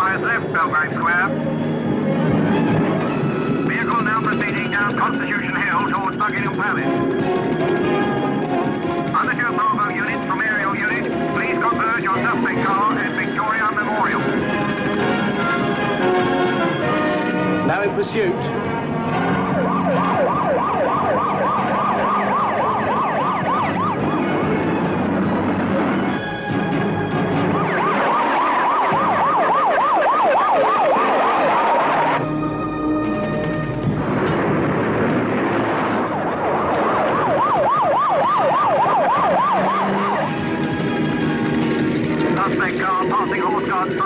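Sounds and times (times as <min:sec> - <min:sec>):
traffic noise: 0:00.0 - 0:44.0
police siren yelping: 0:18.6 - 0:32.2, 0:35.4 - 0:44.0.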